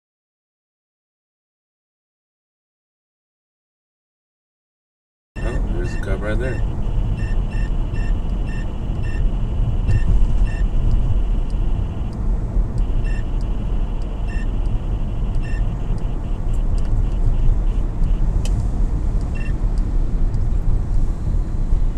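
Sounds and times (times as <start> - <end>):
quick electronic chirps: 5.4 - 9.2, 9.9 - 12.1, 12.8 - 14.6, 15.4 - 16.3
short beeps: 5.4 - 12.2, 12.8 - 18.3, 19.3 - 19.6
car road rumble: 5.4 - 21.9.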